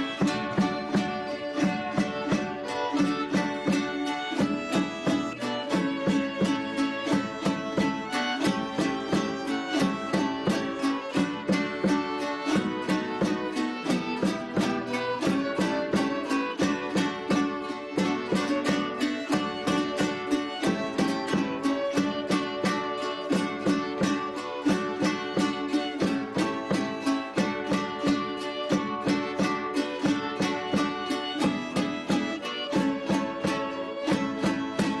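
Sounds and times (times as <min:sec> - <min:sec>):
strummed string instruments: 0:00.0 - 0:35.0
violin: 0:00.0 - 0:35.0.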